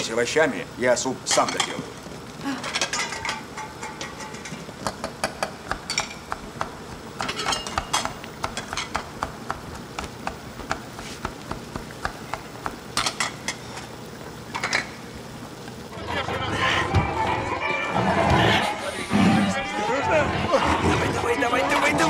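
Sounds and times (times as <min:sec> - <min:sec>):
low background noise: 0:00.0 - 0:22.0
metal pots and utensils clinking: 0:01.3 - 0:01.9, 0:02.6 - 0:06.3, 0:07.2 - 0:09.0, 0:13.0 - 0:13.6, 0:14.5 - 0:15.0.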